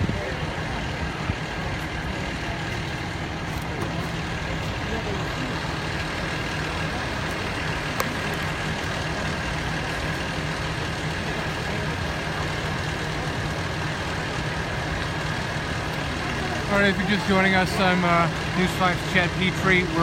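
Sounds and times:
fire engine idling: 0.0s - 20.0s
outdoor noise: 0.0s - 20.0s.

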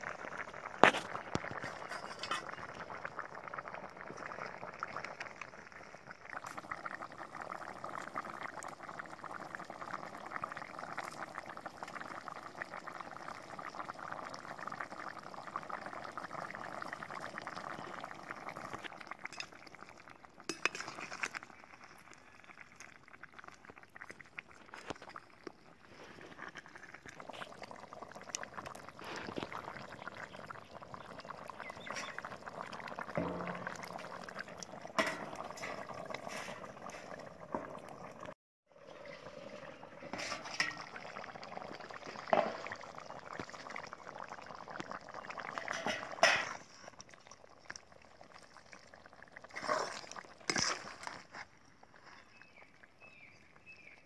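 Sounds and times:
curry bubbling in a pot: 0.0s - 54.0s
metal ladle clinking against pot: 35.0s - 35.8s.

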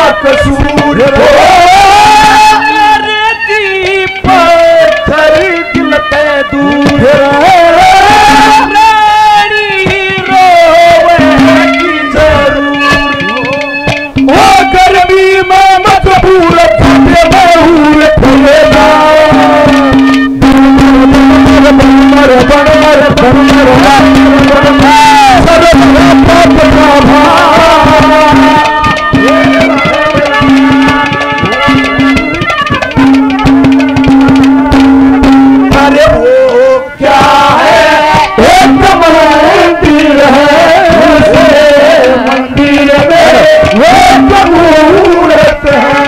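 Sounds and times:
bending melody line: 0.0s - 46.0s
hand drums: 0.0s - 46.0s
held drone note: 16.7s - 46.0s.

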